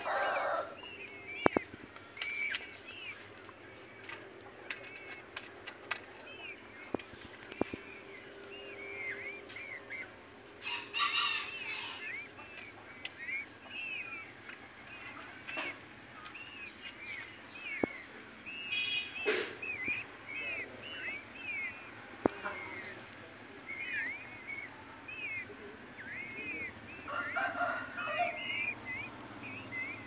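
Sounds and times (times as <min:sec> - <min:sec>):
harsh chick calls: 0:00.0 - 0:30.0
peafowl chicks peeping: 0:00.0 - 0:30.0.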